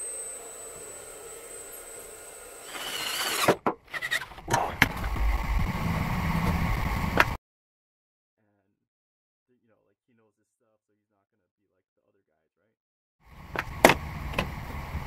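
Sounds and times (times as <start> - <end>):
electric drill grinding through steel: 0.0 - 7.4.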